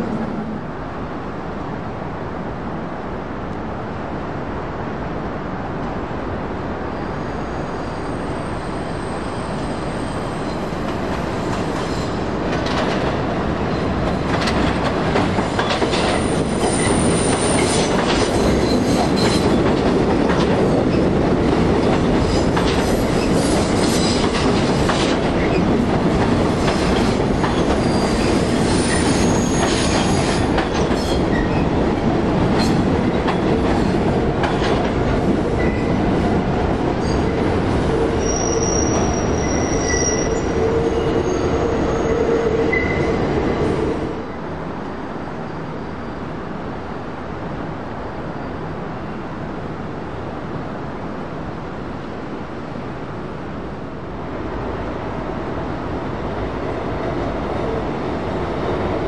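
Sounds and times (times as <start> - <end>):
subway train rumbling: 0.0 - 59.0
wheels clacking over rail joints: 10.9 - 37.3.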